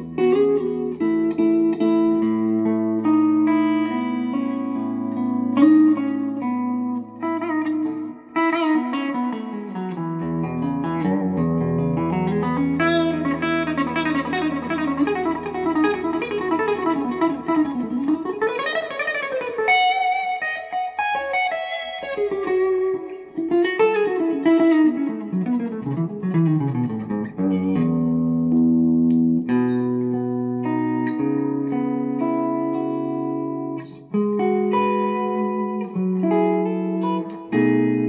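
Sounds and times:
electric guitar lead runs: 0:10.4 - 0:30.9.

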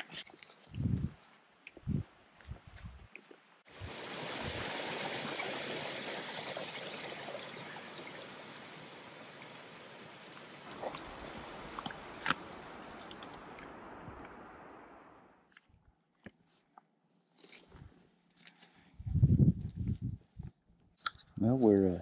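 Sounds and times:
creek running over rocks: 0:03.7 - 0:15.3.

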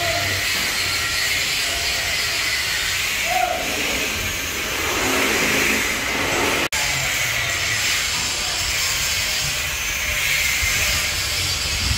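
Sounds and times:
steady hissing noise: 0:02.9 - 0:07.2
low rumble: 0:03.6 - 0:06.8.

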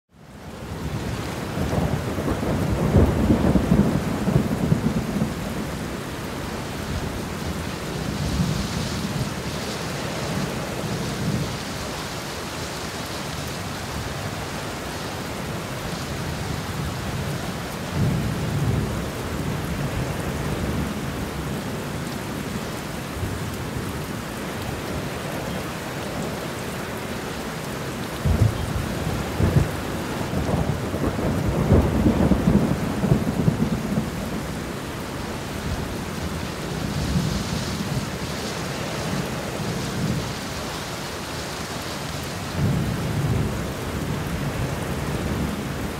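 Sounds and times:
heavy rain: 0:00.1 - 0:45.9
thunder rumbling: 0:00.8 - 0:11.8, 0:28.1 - 0:40.5.

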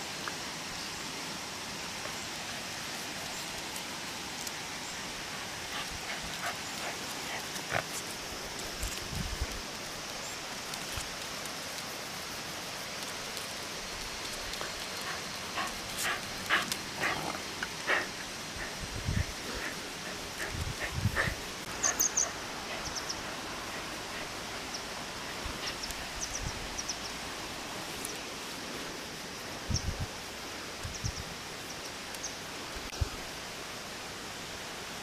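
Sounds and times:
steady outdoor hiss: 0:00.0 - 0:35.0
dogs rustling and scuffing: 0:05.6 - 0:26.3.

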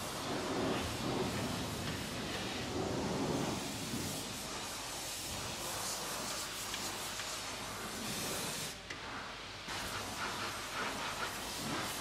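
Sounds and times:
cleaning equipment hissing: 0:00.0 - 0:08.8.

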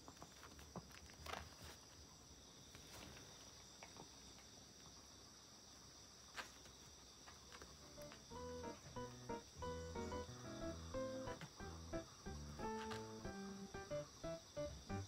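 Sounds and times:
faint high-pitched hum: 0:07.7 - 0:15.0.

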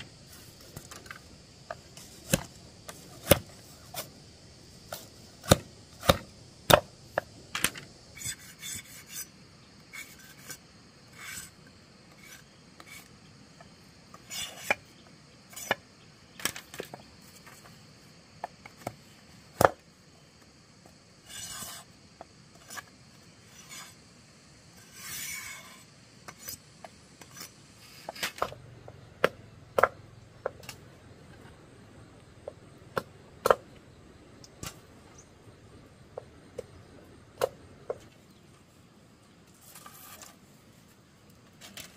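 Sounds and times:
rasping scrapes on wood: 0:08.2 - 0:09.3.

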